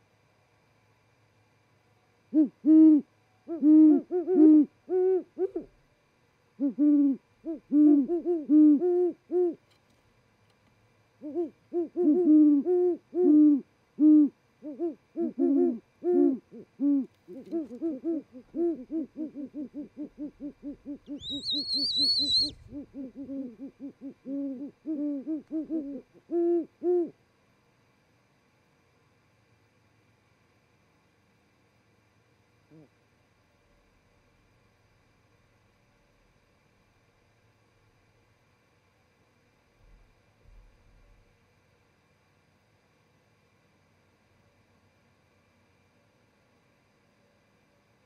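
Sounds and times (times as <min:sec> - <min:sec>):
owls hooting: 0:02.3 - 0:05.8, 0:06.6 - 0:09.6, 0:11.2 - 0:27.2.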